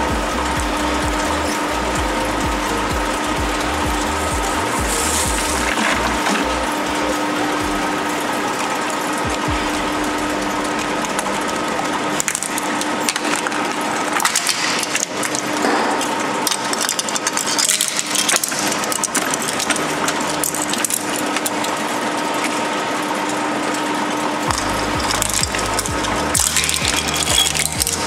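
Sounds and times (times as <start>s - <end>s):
shredder humming: 0.0s - 28.0s.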